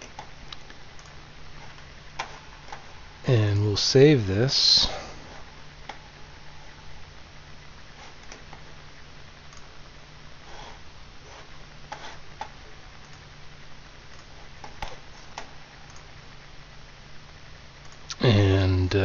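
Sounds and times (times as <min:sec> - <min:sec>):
low steady hum: 0:00.0 - 0:19.0
computer mouse clicks: 0:14.1 - 0:16.1.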